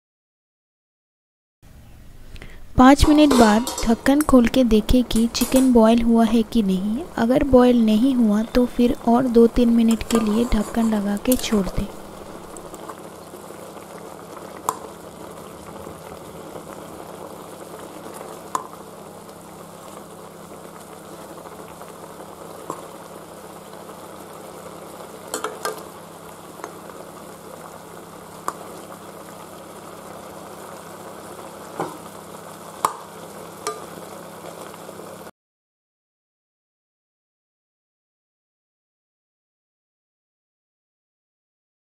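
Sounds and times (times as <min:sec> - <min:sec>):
food sizzling and bubbling: 0:02.2 - 0:35.3
spatula clicking against pan: 0:33.6 - 0:33.8.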